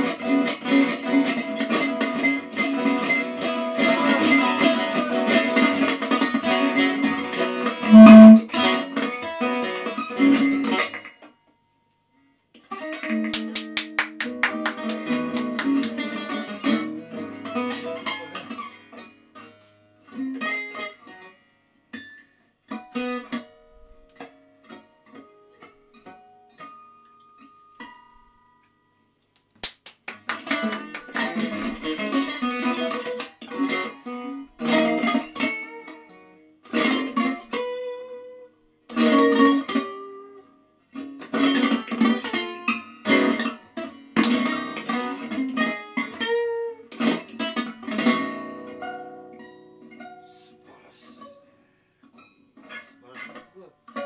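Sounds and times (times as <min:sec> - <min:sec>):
electric guitar through an amp: 0:00.0 - 0:08.6.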